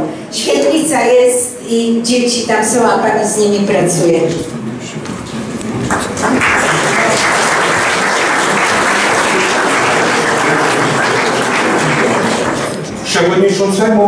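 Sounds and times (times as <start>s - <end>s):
audience applauding: 5.8s - 12.9s.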